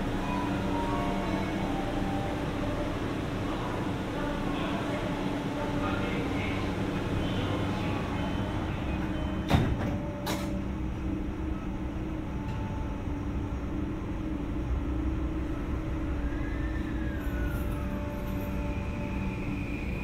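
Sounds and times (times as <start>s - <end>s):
air conditioning running: 0.0s - 20.0s
train car hum: 0.0s - 20.0s
train car knocks: 9.4s - 10.6s.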